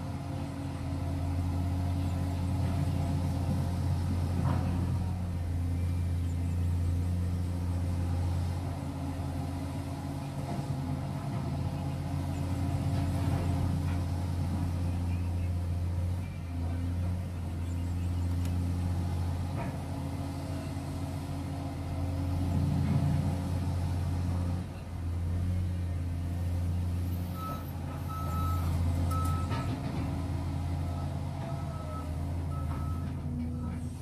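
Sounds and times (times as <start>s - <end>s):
excavator diesel engine running: 0.0s - 34.0s
reversing alarm beeping: 27.3s - 29.7s, 31.6s - 33.7s.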